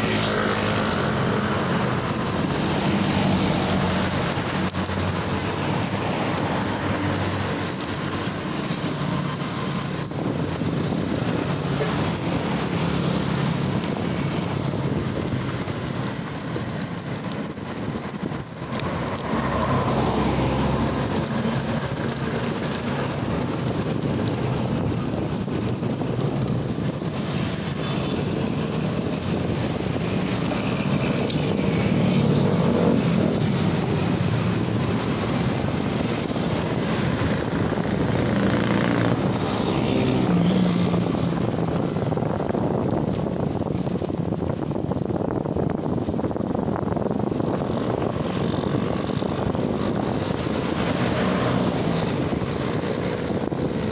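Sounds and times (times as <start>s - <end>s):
engine drone of traffic: 0.0s - 53.9s
wind noise on microphone: 0.0s - 53.9s.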